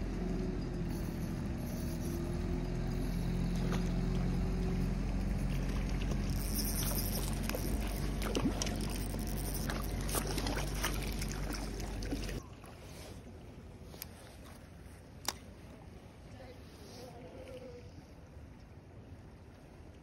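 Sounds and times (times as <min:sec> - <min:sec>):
steady low hum: 0:00.0 - 0:19.3
fish splashing in water: 0:05.4 - 0:12.4.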